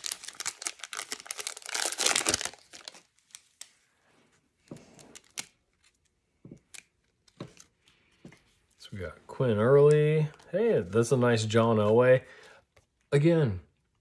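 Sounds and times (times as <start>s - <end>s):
foil wrapper crinkling and tearing: 0.0s - 3.8s
cards rustling as handled: 0.0s - 3.9s, 4.7s - 8.8s.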